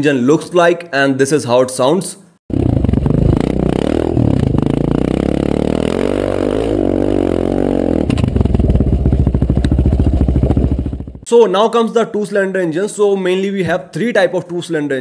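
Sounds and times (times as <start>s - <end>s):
motorcycle engine revving: 2.5s - 11.2s.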